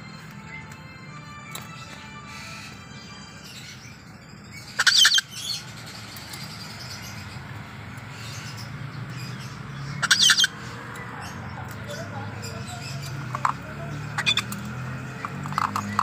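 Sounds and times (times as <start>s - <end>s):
cockatoo chirping calls: 4.6s - 5.6s, 9.8s - 16.0s.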